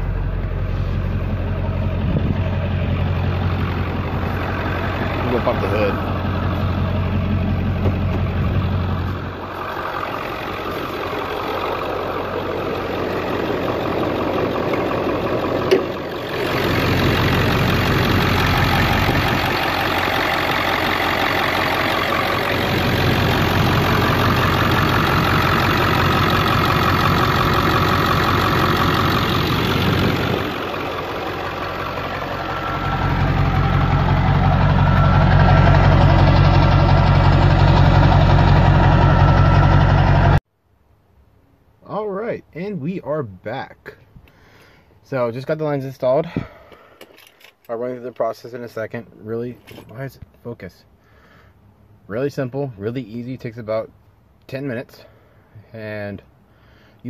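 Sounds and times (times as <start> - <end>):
diesel engine idling with knock: 0.0 - 40.4
hood popping clunk: 6.0 - 9.3, 12.5 - 20.4.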